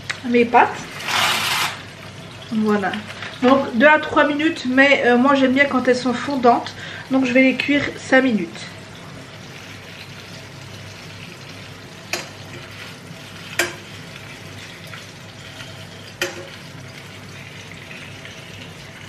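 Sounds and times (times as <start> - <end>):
fish sizzling in a frying pan: 0.0 - 19.0
metal fork clicking on pan: 12.1 - 12.6, 13.5 - 13.8, 16.2 - 16.6.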